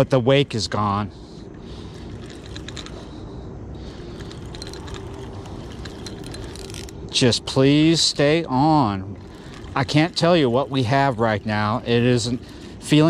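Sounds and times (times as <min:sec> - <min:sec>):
low steady rumble: 0:00.0 - 0:13.0
fishing reel clicking: 0:04.0 - 0:07.0, 0:09.2 - 0:13.0.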